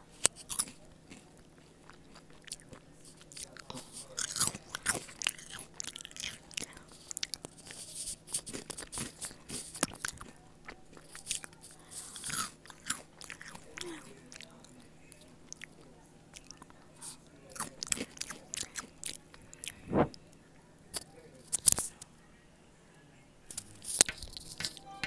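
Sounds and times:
crunchy snack chewing: 0.1 - 20.1
mouth sounds: 17.6 - 20.2, 23.5 - 25.0.

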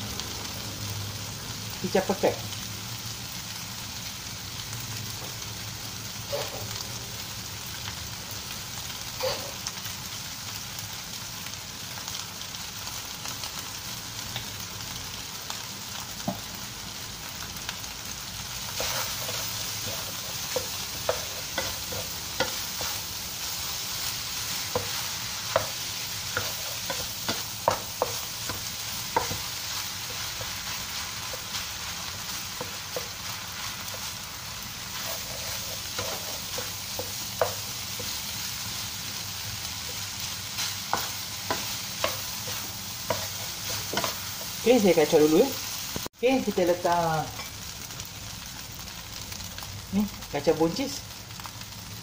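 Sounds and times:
rice sizzling in a wok: 0.0 - 52.0
spatula scraping a pan: 18.7 - 23.1, 34.8 - 38.2.

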